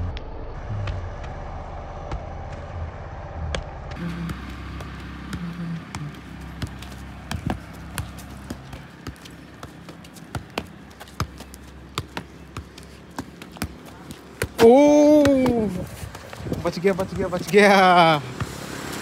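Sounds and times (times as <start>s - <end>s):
football thudding off foot: 3.6s - 15.8s.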